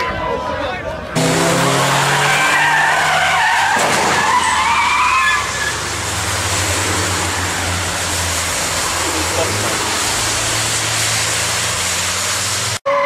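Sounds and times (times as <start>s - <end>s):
car engines passing: 0.2s - 12.8s
tyres squealing: 1.8s - 12.0s.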